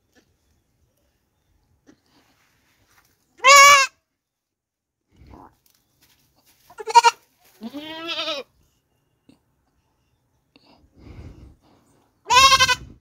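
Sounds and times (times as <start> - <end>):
goat kid bleating: 3.4 - 4.0, 6.7 - 8.6, 12.2 - 13.0.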